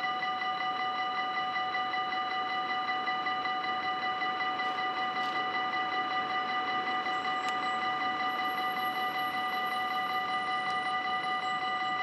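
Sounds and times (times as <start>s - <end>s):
level crossing bell ringing: 2.6s - 12.0s.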